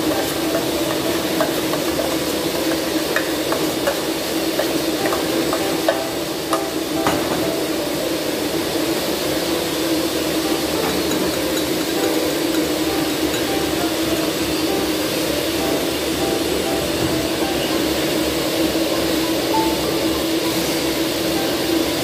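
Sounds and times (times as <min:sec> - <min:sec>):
utensils clinking against metal bowl: 0:00.0 - 0:07.6, 0:10.5 - 0:15.4
steady machine hum: 0:00.0 - 0:22.0.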